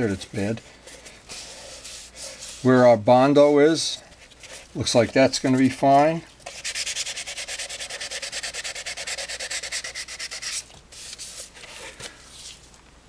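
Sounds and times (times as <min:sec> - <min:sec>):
sandpaper rubbing plastic: 0:05.7 - 0:12.6.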